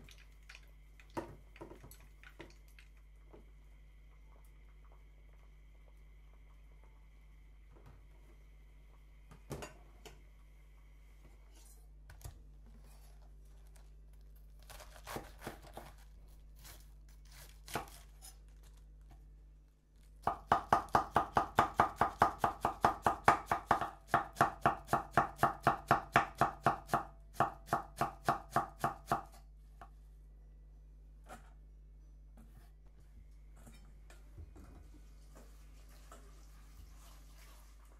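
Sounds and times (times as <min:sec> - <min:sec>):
knife chopping cabbage on wooden board: 0:14.7 - 0:16.0, 0:16.6 - 0:18.1, 0:20.2 - 0:29.4.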